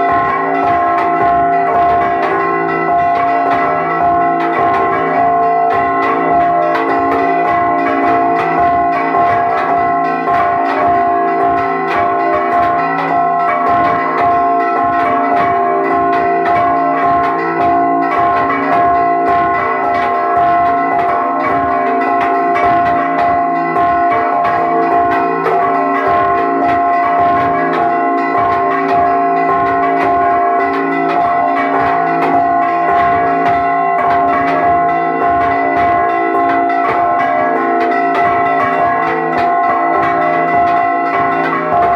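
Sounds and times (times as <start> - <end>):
church bells ringing rapidly: 0.0 - 41.9.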